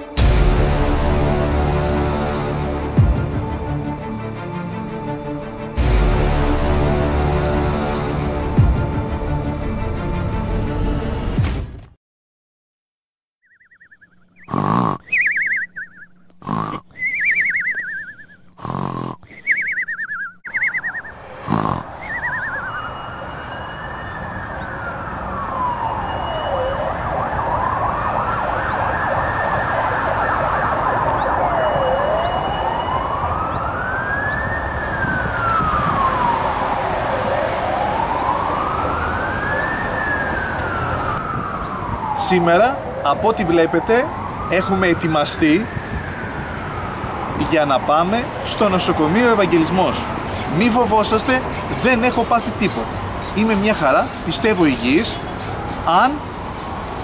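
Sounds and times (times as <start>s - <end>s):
street noise rumble: 0.0s - 11.4s, 19.3s - 57.0s
emergency vehicle siren wailing: 19.5s - 57.0s.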